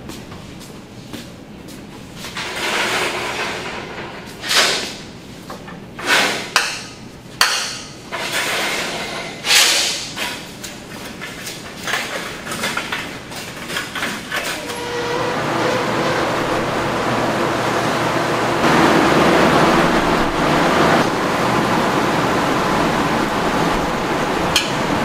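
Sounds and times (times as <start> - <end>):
steady rushing noise: 15.5 - 25.0.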